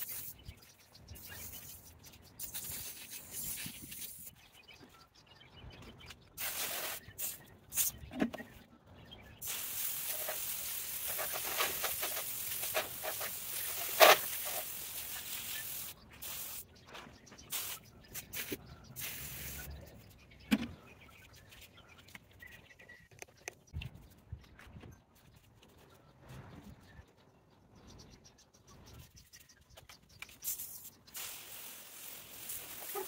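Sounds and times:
hose nozzle spraying water: 6.4 - 7.9, 9.4 - 16.6, 30.4 - 33.0.

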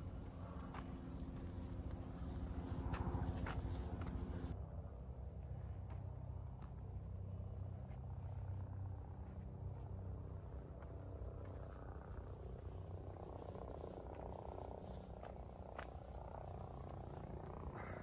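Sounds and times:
low engine hum: 0.0 - 18.0.

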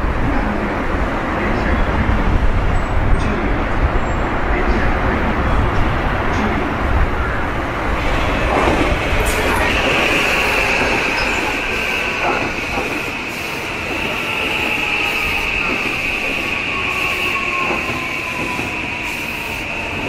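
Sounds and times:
train wheels rumbling on rail: 0.0 - 20.0
high-pitched squeal: 7.9 - 20.0.

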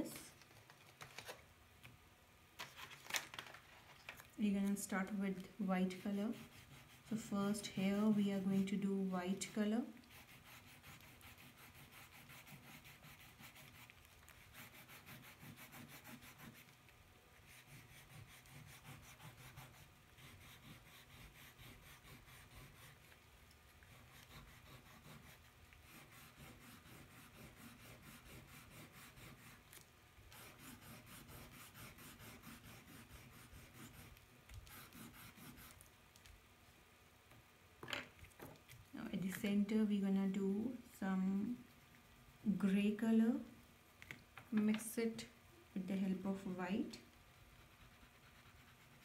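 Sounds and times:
faint steady hum: 0.0 - 49.0
crayon scratching on paper: 5.3 - 8.8, 9.4 - 16.8, 17.4 - 23.2, 23.8 - 35.9, 47.5 - 49.0.

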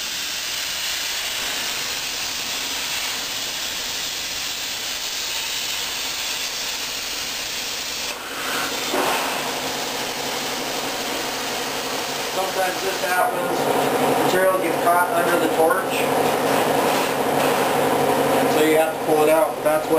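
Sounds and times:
plasma cutter hiss: 0.0 - 13.4
rough cutting noise: 0.6 - 11.3.

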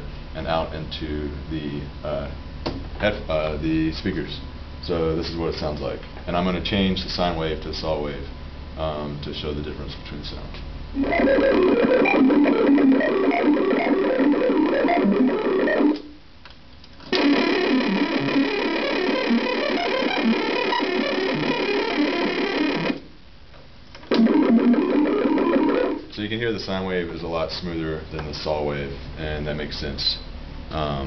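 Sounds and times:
synthesizer random stepped pitches: 11.0 - 16.2, 17.1 - 23.1, 24.1 - 26.1.

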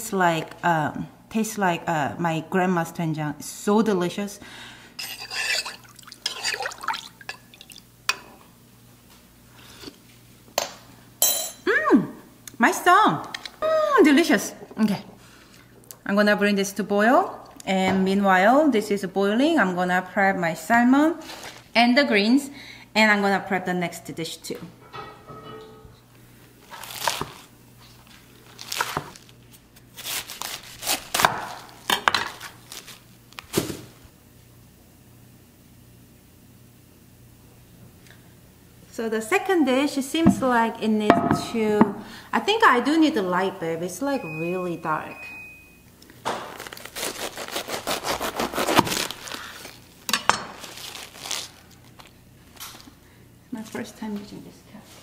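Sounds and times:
knife crunching through cabbage: 26.6 - 33.7, 46.3 - 52.2.

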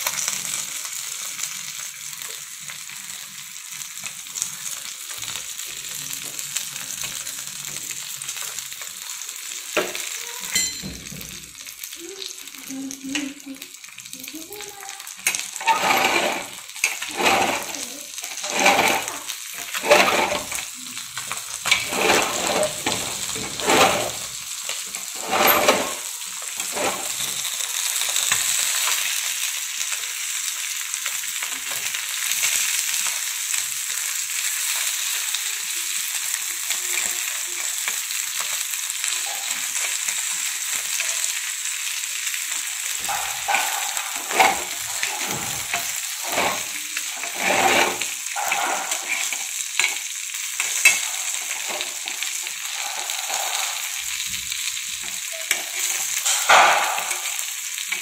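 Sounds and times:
fish sizzling in oil: 0.0 - 58.0
steel spatula strokes in pan: 15.6 - 20.6, 21.7 - 24.3, 25.1 - 27.3, 43.0 - 50.0, 50.6 - 58.0.

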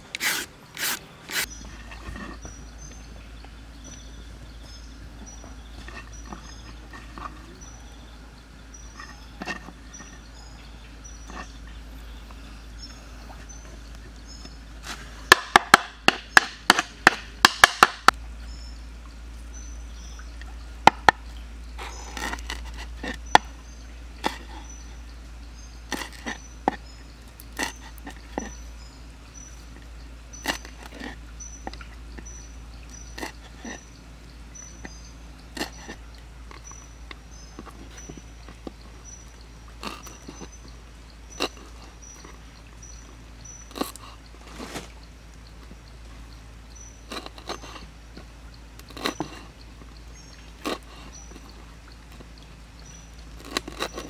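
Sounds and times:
knife chopping on wooden board: 15.3 - 18.1.

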